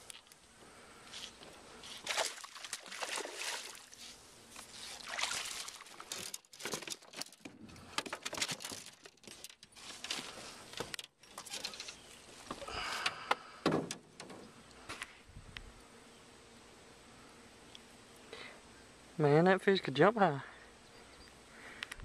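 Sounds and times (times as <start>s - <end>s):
fish splashing in water: 2.0s - 4.0s, 4.9s - 6.2s.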